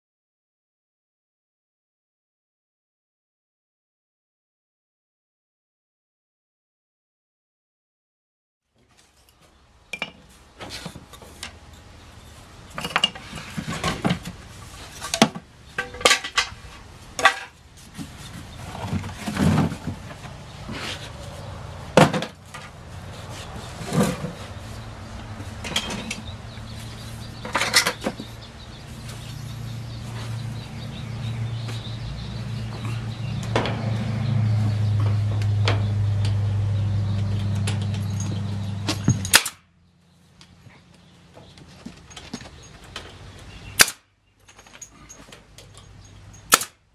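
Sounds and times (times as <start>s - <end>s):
metal tools clinking: 25.6s - 26.3s, 37.6s - 39.4s, 41.7s - 43.7s, 44.4s - 46.5s.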